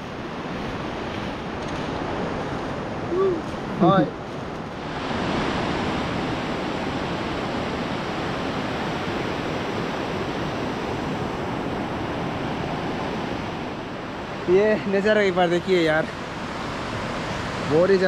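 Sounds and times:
river water rushing: 0:00.0 - 0:18.0.

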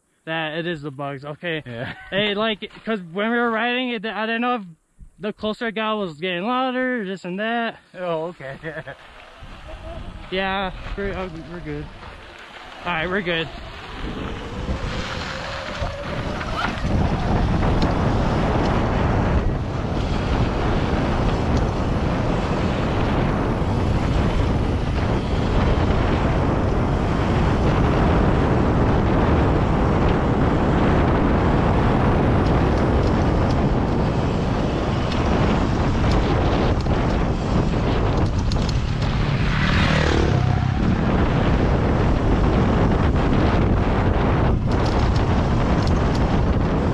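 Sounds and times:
tyres rumbling on gravel: 0:08.1 - 0:46.9
wind buffeting microphone: 0:08.2 - 0:46.9
electric motor whine: 0:09.0 - 0:28.8.

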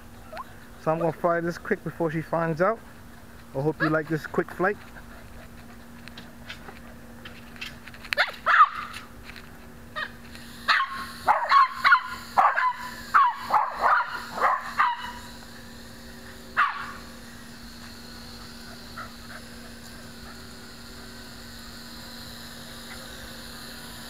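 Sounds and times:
small dog yipping: 0:08.2 - 0:09.0, 0:10.0 - 0:15.2.

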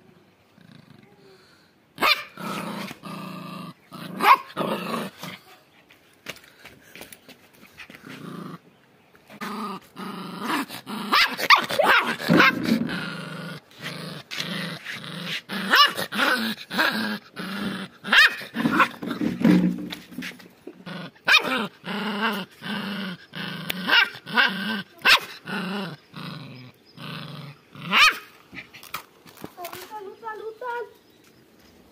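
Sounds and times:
puppy growling: 0:02.3 - 0:05.5, 0:09.3 - 0:29.0.

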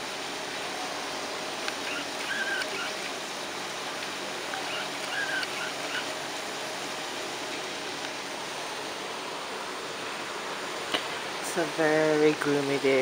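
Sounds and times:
outdoor air hiss: 0:00.0 - 0:13.0
bird chirping: 0:01.8 - 0:03.0, 0:04.5 - 0:06.1.

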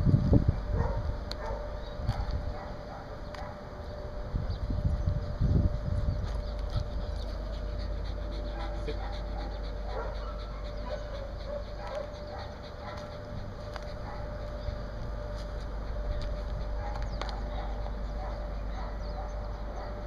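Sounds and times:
small dog panting: 0:06.2 - 0:20.0.

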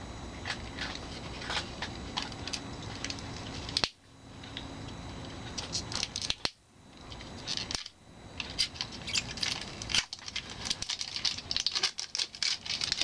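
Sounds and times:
packaging clicking and rustling: 0:07.4 - 0:13.0.

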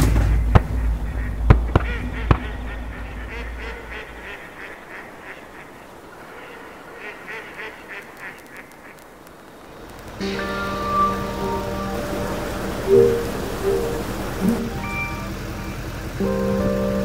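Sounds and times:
low rumble: 0:00.0 - 0:04.6, 0:09.5 - 0:16.6
sharp cracks: 0:00.0 - 0:06.4, 0:07.0 - 0:10.8
ducks quacking: 0:00.0 - 0:16.8.

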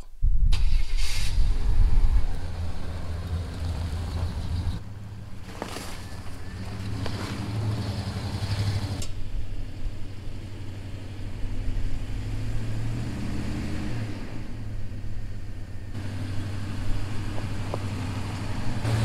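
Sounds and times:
tyre noise hiss: 0:00.5 - 0:04.8
vehicle engine running: 0:01.4 - 0:19.0.

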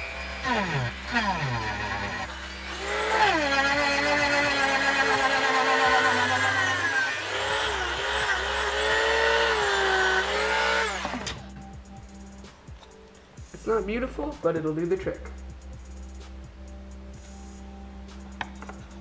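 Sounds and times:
rotary tool sanding wood: 0:00.0 - 0:11.5.

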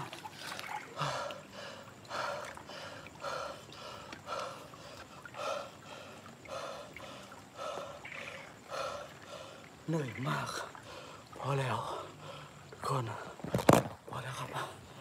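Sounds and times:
man panting hard: 0:01.0 - 0:08.0.

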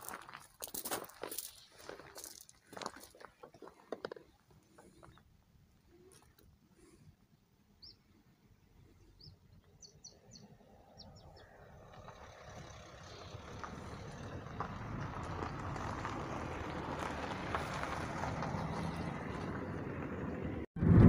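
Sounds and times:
high bird chirps: 0:07.8 - 0:08.0
low rumbling noise: 0:10.5 - 0:21.0.

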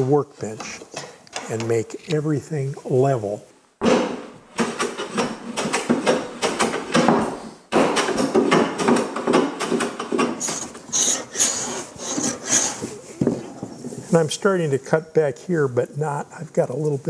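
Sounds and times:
hand plane rasping wood: 0:10.1 - 0:13.0.

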